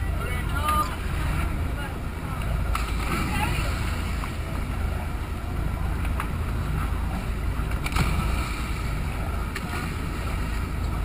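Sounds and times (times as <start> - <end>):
boat engine rumbling: 0.0 - 11.0
water sloshing against hull: 0.0 - 11.0
divers splashing into water: 2.4 - 6.4, 7.0 - 11.0.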